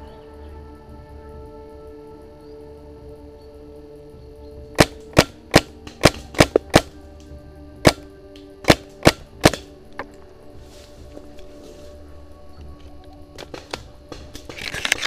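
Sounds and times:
paintball marker shots: 0:04.8 - 0:07.0, 0:07.8 - 0:09.7.

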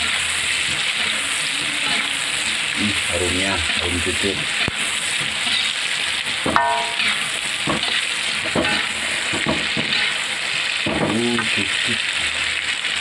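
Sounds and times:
metal spatula scraping a wok: 0:00.0 - 0:02.8, 0:04.4 - 0:10.2
food sizzling in hot oil: 0:00.0 - 0:13.0.

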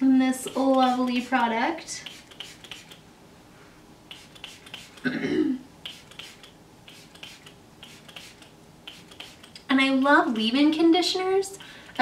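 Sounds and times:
spray bottle spritzing: 0:00.5 - 0:01.3, 0:02.0 - 0:03.0, 0:04.1 - 0:05.1, 0:05.8 - 0:09.6
wet hair rubbing between fingers: 0:00.5 - 0:03.0, 0:04.1 - 0:05.1, 0:05.8 - 0:09.6.

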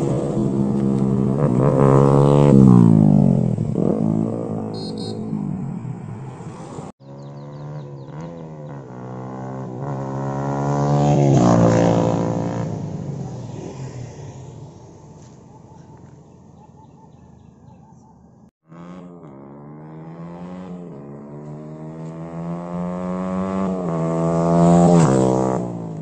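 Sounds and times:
motorcycle accelerating past: 0:00.0 - 0:15.3, 0:18.6 - 0:26.0.

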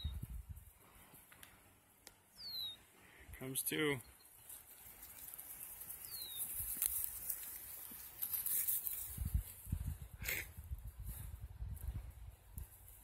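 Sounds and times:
bird chirp: 0:02.3 - 0:02.9, 0:04.0 - 0:04.6, 0:06.0 - 0:06.6
footsteps through grass: 0:04.3 - 0:10.0.

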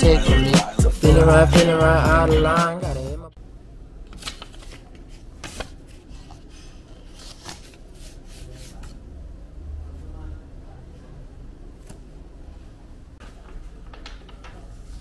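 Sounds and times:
paper rustling: 0:04.1 - 0:09.0.

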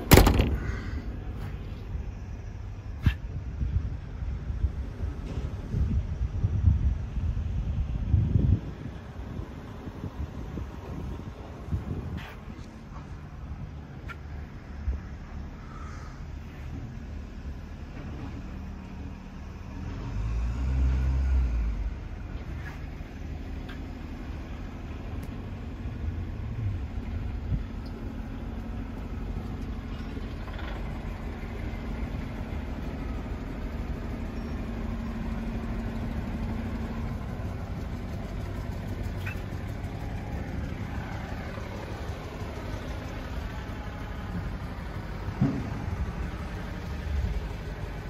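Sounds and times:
engine rumbling: 0:00.0 - 0:48.0.

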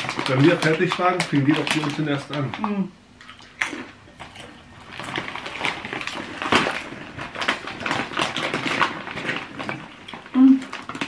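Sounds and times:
crackers being chewed: 0:00.0 - 0:11.0.

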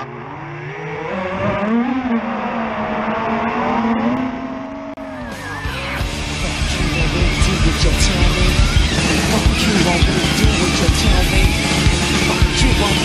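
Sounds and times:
drone motors whining: 0:00.0 - 0:13.0
rush of noise: 0:04.6 - 0:13.0.

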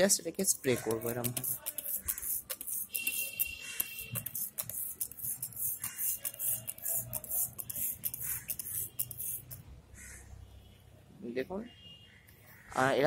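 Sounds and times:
spray bottle trigger clicking and hissing: 0:00.8 - 0:09.6.

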